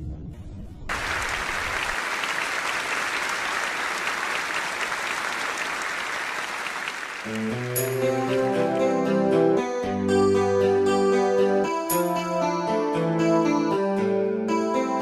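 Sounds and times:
studio audience applauding: 0.9s - 9.1s.

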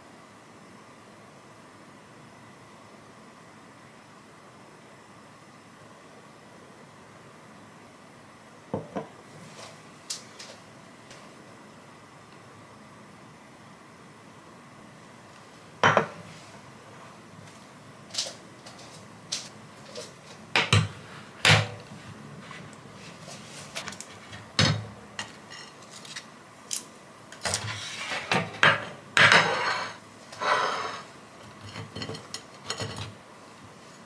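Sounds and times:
glass plate set down: 15.8s - 16.2s
scraping on countertop: 27.4s - 33.1s.

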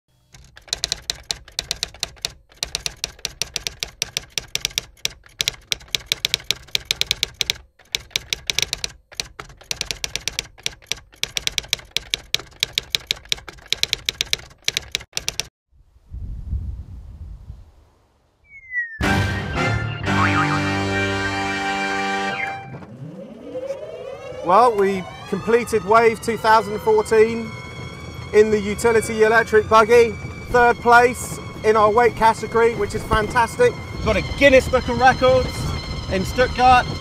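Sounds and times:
typewriter key clicks: 0.4s - 15.5s.

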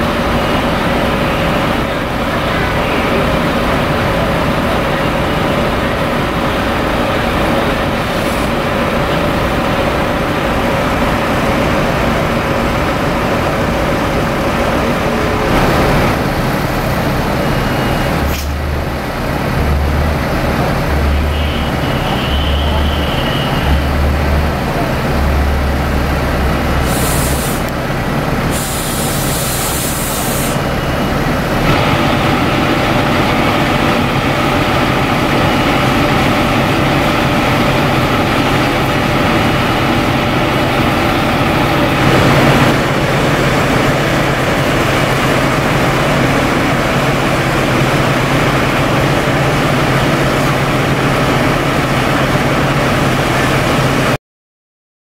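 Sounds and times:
diesel engine running: 0.0s - 54.2s
compressed air hisses: 26.8s - 27.7s, 28.5s - 30.6s.

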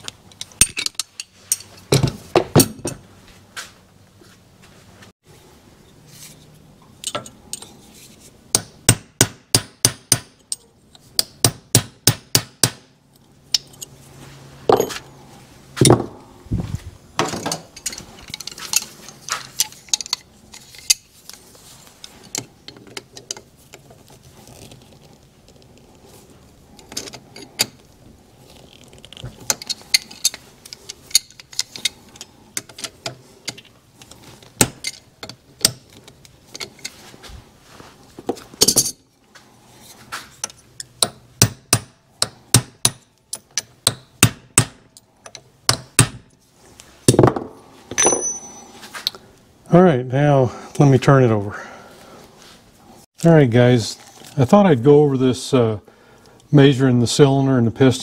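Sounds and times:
tools clinking on metal: 0.3s - 3.0s, 7.0s - 7.7s, 14.7s - 15.0s, 38.6s - 39.1s, 47.9s - 49.1s.

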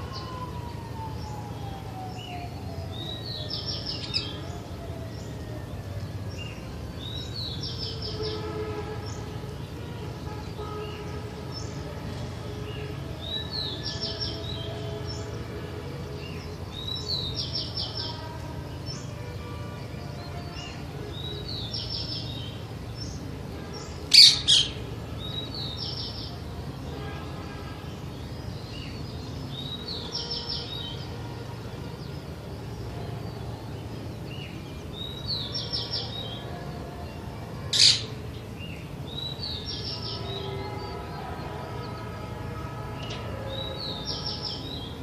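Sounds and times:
birds chirping: 0.0s - 32.0s, 32.6s - 45.0s
parakeet screeching: 24.1s - 24.8s, 37.7s - 38.1s.

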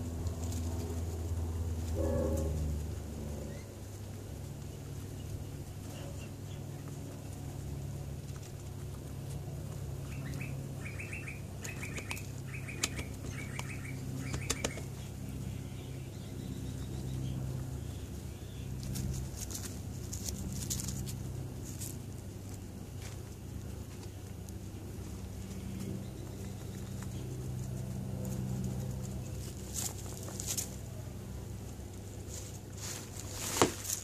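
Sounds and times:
guinea pigs crunching grass: 0.0s - 34.0s
steady low hum: 0.0s - 34.0s
bird chirping trills: 10.0s - 18.8s
rustling in grass: 18.7s - 31.0s, 31.6s - 34.0s.

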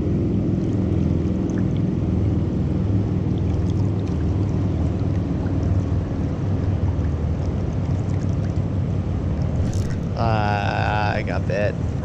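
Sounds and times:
wind on microphone: 9.4s - 10.2s.

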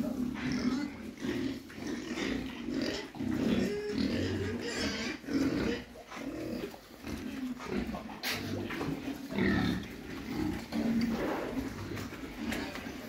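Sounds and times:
pigs grunting: 0.0s - 13.0s
pig squealing: 2.0s - 6.2s.

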